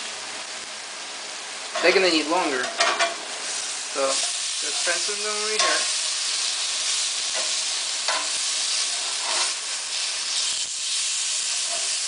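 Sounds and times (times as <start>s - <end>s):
steak sizzling on grill pan: 0.0s - 12.0s
metal tongs clicking on pan: 5.5s - 5.8s.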